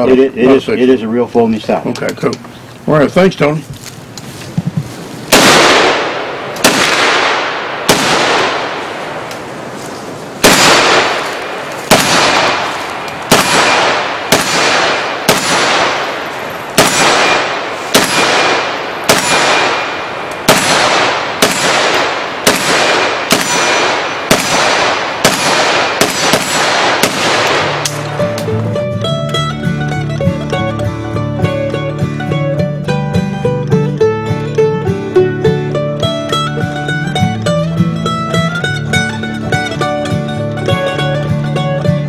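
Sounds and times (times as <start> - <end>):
rifle shots with echo: 5.3 - 28.4.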